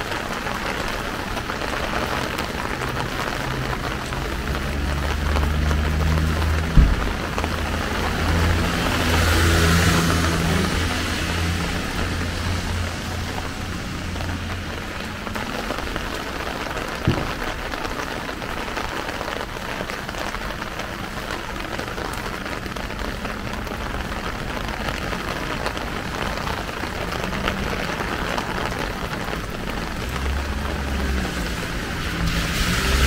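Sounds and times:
rain on a plastic umbrella: 0.0s - 33.0s
sharp thump: 6.7s - 7.3s.

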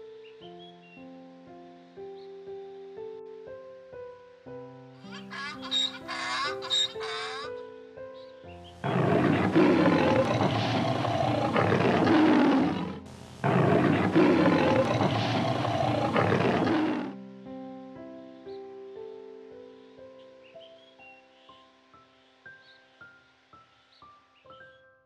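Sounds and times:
soft piano music: 0.0s - 11.8s, 15.1s - 25.0s
rough animal calls: 5.5s - 7.5s, 8.8s - 17.2s.

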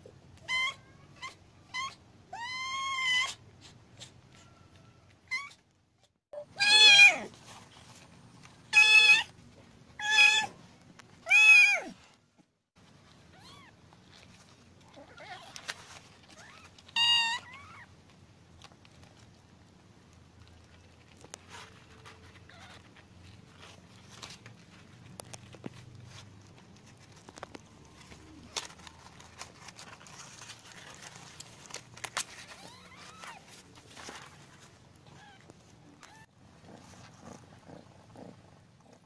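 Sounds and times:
faint clicks and rustles: 7.3s - 10.0s, 12.0s - 39.0s.

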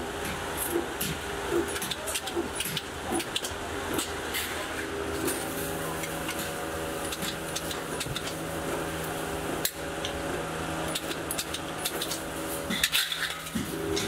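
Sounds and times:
electrical hum of machinery: 0.0s - 14.0s.

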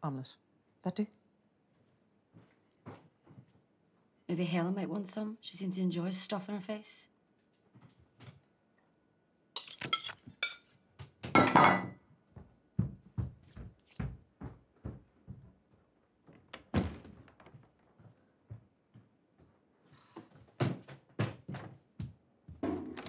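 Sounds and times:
crockery and cutlery clattering: 9.6s - 10.6s, 11.4s - 12.0s.

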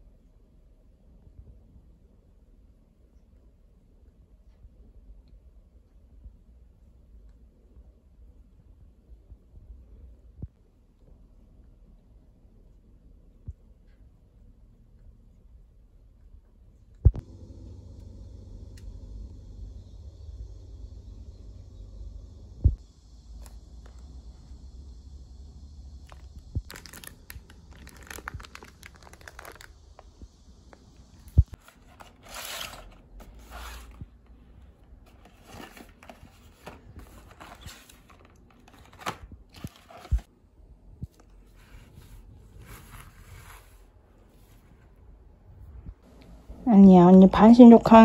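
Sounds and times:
cardboard and wrapping rustling: 26.1s - 30.2s, 31.2s - 40.3s, 41.5s - 45.0s.

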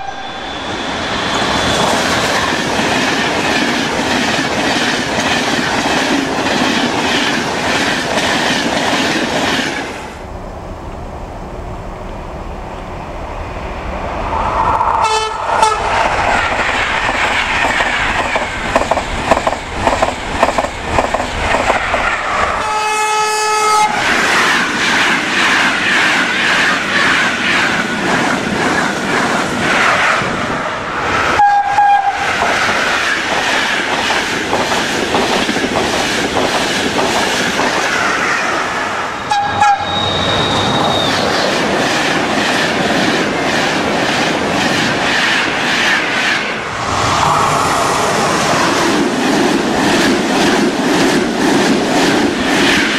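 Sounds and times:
trains passing at speed: 0.0s - 52.9s
train horn blasts: 15.0s - 16.0s, 22.6s - 24.0s, 31.4s - 32.2s, 39.2s - 40.3s.

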